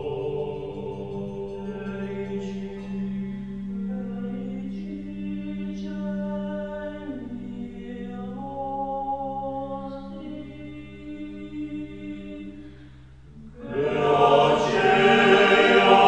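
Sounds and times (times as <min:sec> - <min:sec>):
choir singing unaccompanied chant: 0:00.0 - 0:03.3, 0:13.4 - 0:16.0.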